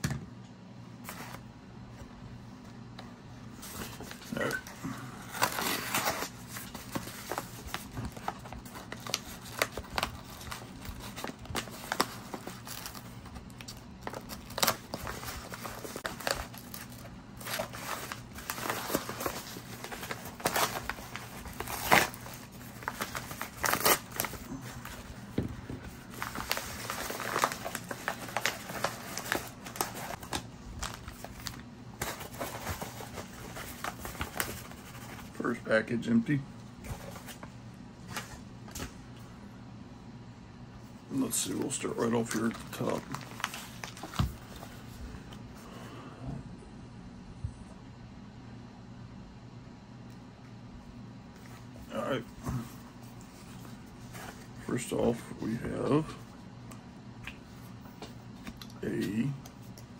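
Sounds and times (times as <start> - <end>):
paper crinkling and tearing: 3.6 - 35.6, 41.2 - 44.9
plastic bags rustling: 5.2 - 35.5, 41.2 - 45.0.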